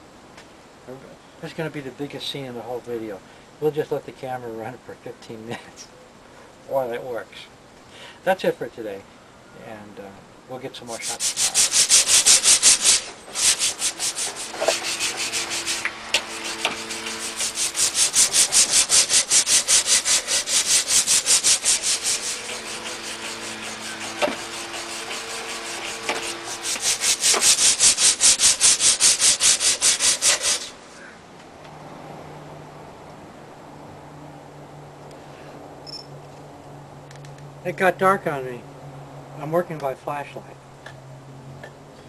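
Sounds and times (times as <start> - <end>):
scrubbing metal back and forth: 10.8 - 31.1.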